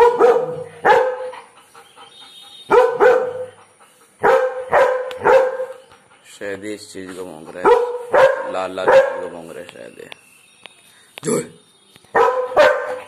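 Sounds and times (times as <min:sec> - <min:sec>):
dog barking loudly: 0:00.0 - 0:01.5, 0:02.7 - 0:03.6, 0:04.2 - 0:05.8, 0:07.6 - 0:09.3, 0:12.2 - 0:13.0.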